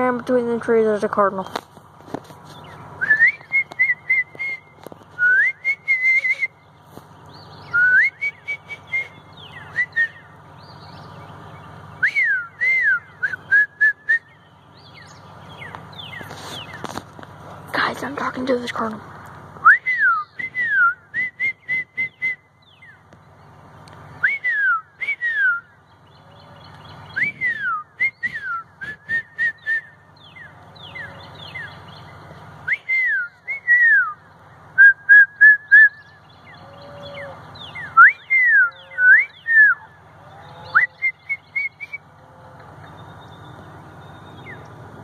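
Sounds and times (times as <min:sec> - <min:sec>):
person whistling birdsong: 0:03.0 - 0:06.7, 0:07.6 - 0:10.3, 0:12.0 - 0:14.6, 0:19.6 - 0:23.0, 0:24.2 - 0:25.8, 0:27.1 - 0:31.7, 0:32.6 - 0:39.9, 0:40.5 - 0:42.1.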